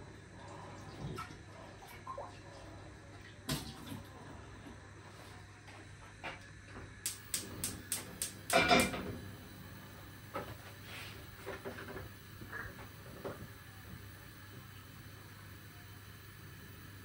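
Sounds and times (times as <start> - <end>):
kitchen utensils clattering: 8.5 - 9.1.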